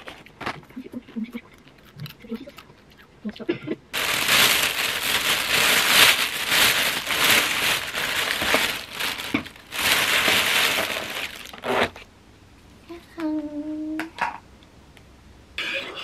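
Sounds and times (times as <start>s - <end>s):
plastic bag crinkling: 4.0s - 12.0s.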